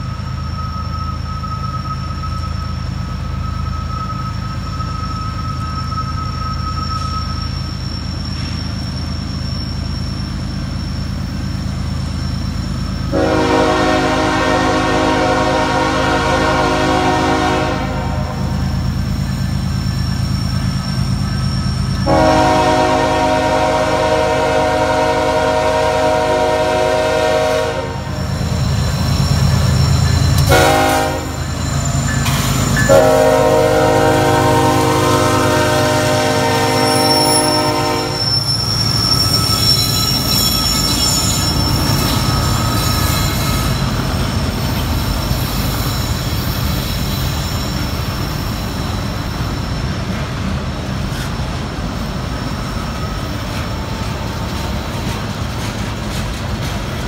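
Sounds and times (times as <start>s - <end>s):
diesel locomotive engine rumble: 0.0s - 57.0s
locomotive air horn blasts: 13.1s - 18.7s, 22.0s - 28.2s, 30.4s - 31.4s, 32.9s - 38.4s.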